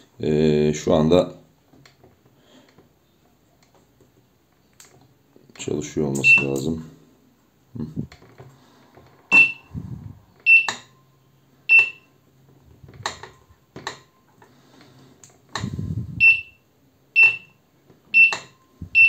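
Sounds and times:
short high beeps: 6.2 - 6.6, 9.3 - 9.7, 10.5 - 12.1, 16.2 - 16.6, 18.2 - 19.0
low handling rumble: 9.1 - 10.3.

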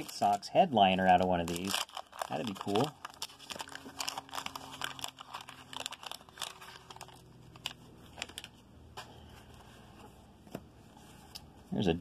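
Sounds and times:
plastic wrapper crinkling and tearing: 0.0 - 8.7
handling of cards: 0.0 - 11.8.

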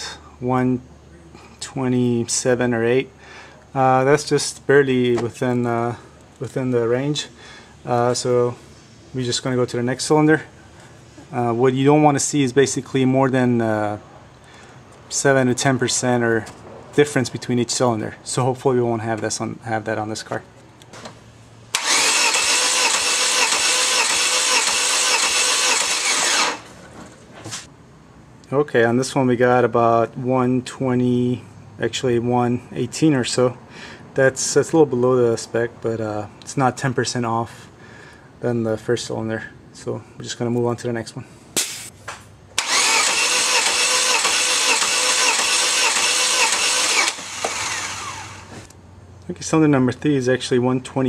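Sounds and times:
starter motor cranking engine: 21.7 - 26.8, 42.6 - 48.7.

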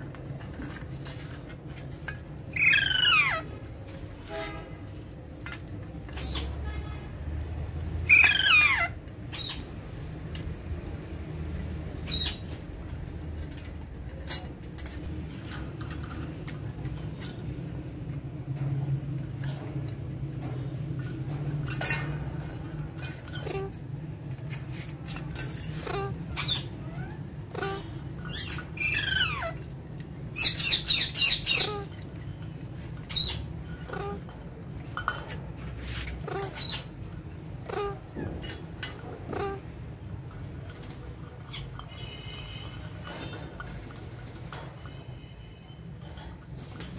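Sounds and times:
parakeets squawking: 2.5 - 3.7, 8.0 - 9.7, 12.0 - 12.6, 25.4 - 29.7, 30.3 - 32.1, 33.0 - 34.3, 36.0 - 39.8.

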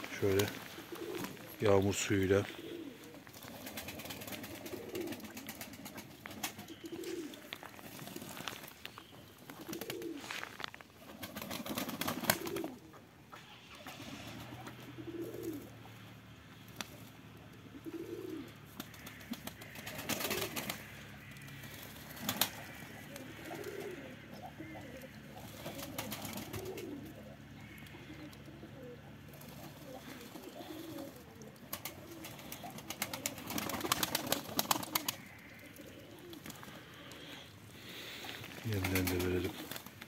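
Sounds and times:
wing flutters: 0.0 - 12.8, 17.9 - 40.0
pigeons cooing: 0.0 - 40.0
birds splashing in water: 18.7 - 24.0, 29.8 - 40.0.

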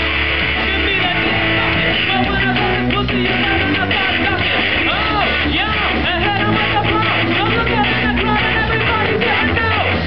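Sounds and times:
electric guitar: 0.0 - 10.0
live rock band playing: 0.0 - 10.0.

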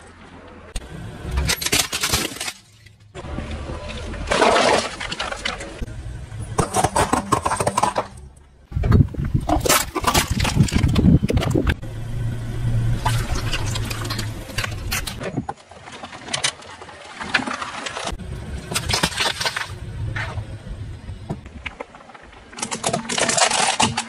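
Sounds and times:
tyre crushing small objects: 1.4 - 3.2, 3.8 - 5.9, 6.6 - 11.8, 21.4 - 24.0
car engine running low: 4.9 - 15.2, 18.1 - 22.3.

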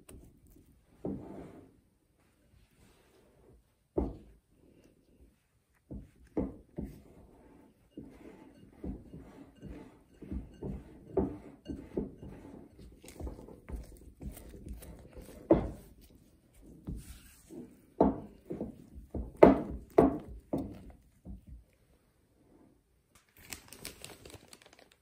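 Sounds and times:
spatula mixing dough in bowl: 5.1 - 21.8.

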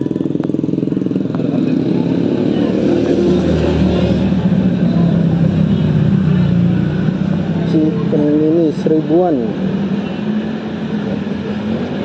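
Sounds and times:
motorcycle engine idling: 0.0 - 2.7.

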